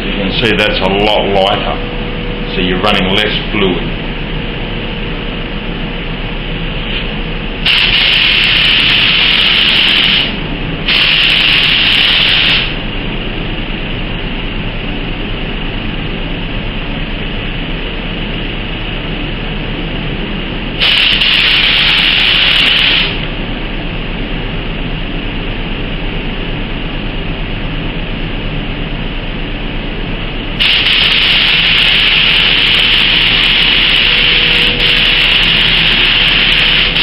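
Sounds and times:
steady background noise: 0:00.0 - 0:37.0
spray gun hissing: 0:07.6 - 0:12.8, 0:20.8 - 0:23.2, 0:30.6 - 0:37.0.

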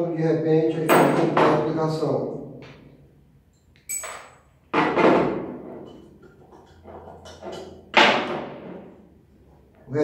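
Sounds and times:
metal clinks and knocks: 0:03.8 - 0:04.6.

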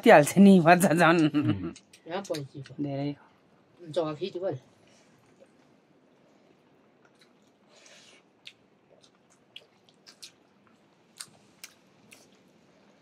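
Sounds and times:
chewing and biting: 0:07.0 - 0:07.6, 0:08.4 - 0:12.6.

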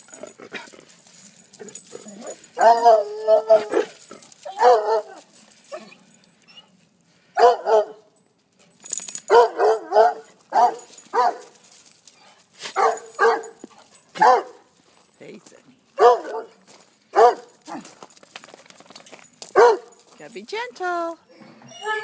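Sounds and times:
dog barking: 0:04.6 - 0:05.2, 0:07.4 - 0:08.0, 0:09.3 - 0:11.5, 0:12.8 - 0:13.6, 0:14.2 - 0:14.6, 0:16.0 - 0:16.6, 0:17.2 - 0:17.9, 0:19.6 - 0:20.0.

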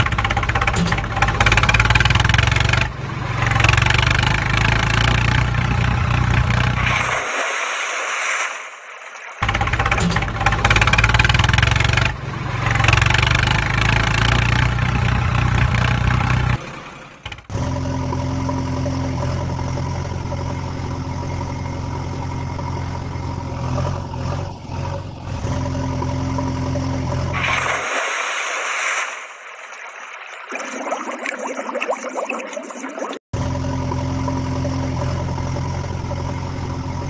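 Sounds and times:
heavy vehicle engine running: 0:00.0 - 0:07.4, 0:09.4 - 0:27.6, 0:33.4 - 0:37.0
engine low hum: 0:09.4 - 0:27.4, 0:33.4 - 0:37.0.

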